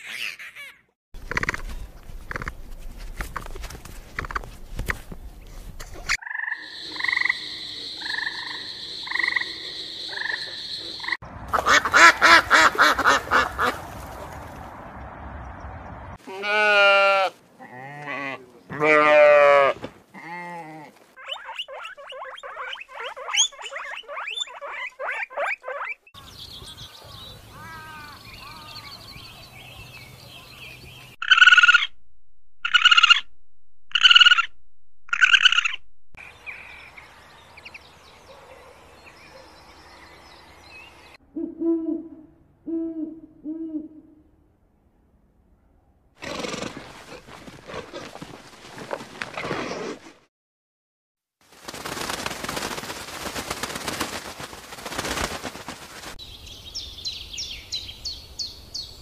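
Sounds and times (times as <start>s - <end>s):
goats bleating: 16.2s - 21.0s.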